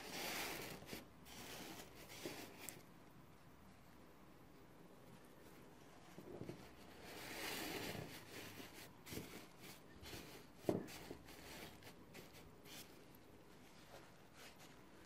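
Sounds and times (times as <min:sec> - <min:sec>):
paper napkins rustling: 0:05.5 - 0:15.0.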